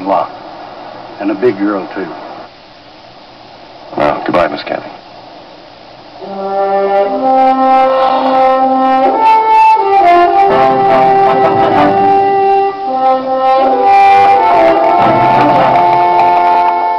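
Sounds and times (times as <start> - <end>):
orchestral brass long notes: 6.2 - 16.9.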